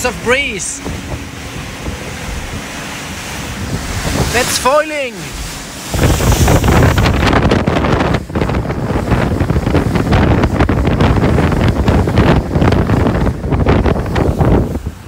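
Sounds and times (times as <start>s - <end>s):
water rushing past hull: 0.0s - 15.0s
wind buffeting microphone: 0.0s - 15.0s.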